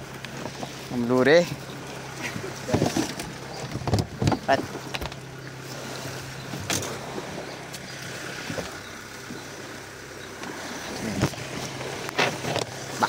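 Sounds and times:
outboard motor running: 0.0 - 13.0
water washing along hull: 0.0 - 13.0
light knocks in boat: 1.4 - 5.5, 6.4 - 7.1, 7.7 - 9.5, 10.3 - 12.8.

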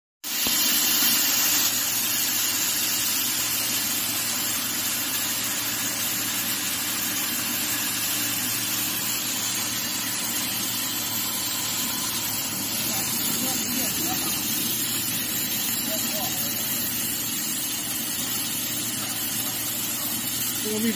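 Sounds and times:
cutting gas jet hissing: 0.2 - 20.9
low machine hum: 5.5 - 20.9.

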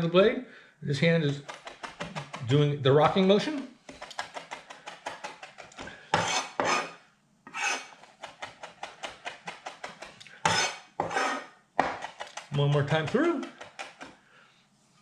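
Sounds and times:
knife scraping cutting board: 3.3 - 14.2.

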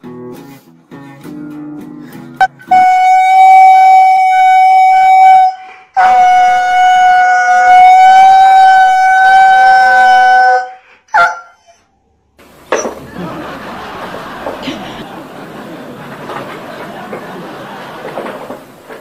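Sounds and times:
dog howling: 6.0 - 11.6.

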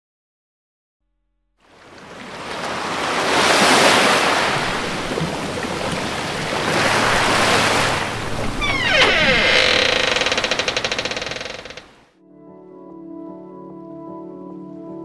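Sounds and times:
sea waves breaking: 1.6 - 12.0
music: 12.1 - 15.0.

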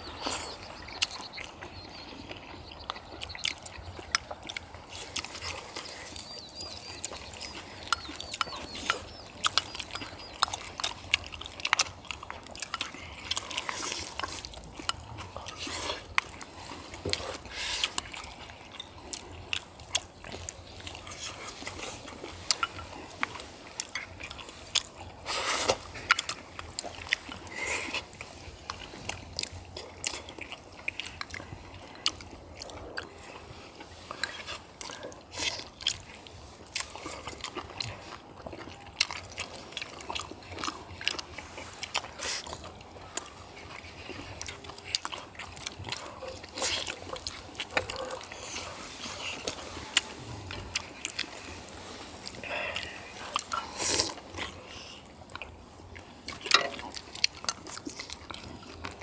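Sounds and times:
people chewing: 0.0 - 59.0
slurping: 0.0 - 59.0.

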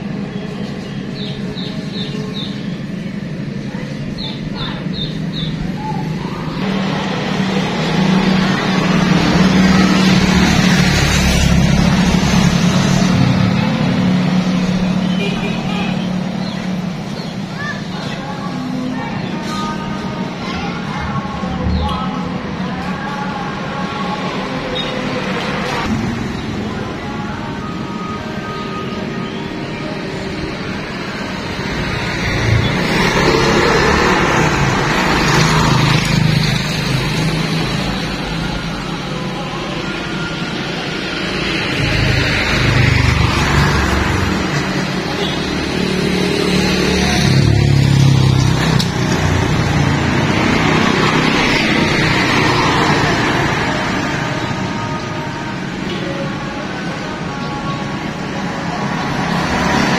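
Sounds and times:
street noise: 0.0 - 59.9
vehicle passing by: 31.2 - 39.6, 40.8 - 55.0, 58.4 - 59.9.

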